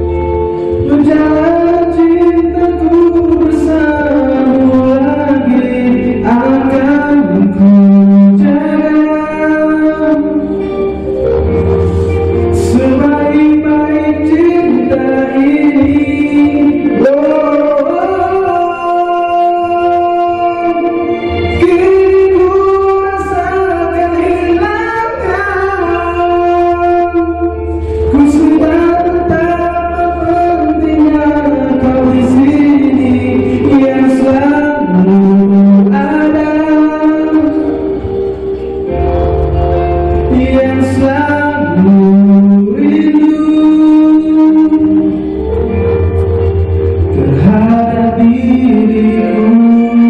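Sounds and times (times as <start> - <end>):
man singing into a microphone: 0.0 - 50.0
musical accompaniment: 0.0 - 50.0.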